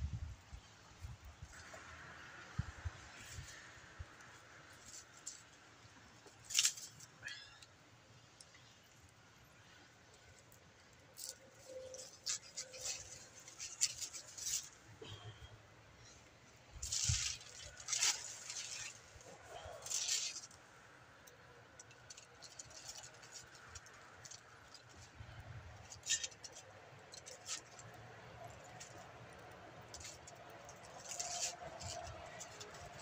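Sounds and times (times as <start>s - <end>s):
aluminium foil crinkling: 6.2s - 7.7s, 11.1s - 15.2s, 16.7s - 20.7s, 21.3s - 33.0s.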